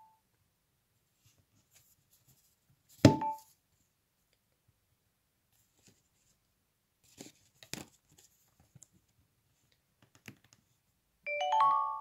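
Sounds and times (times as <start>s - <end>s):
phone charging chime: 11.3s - 12.0s.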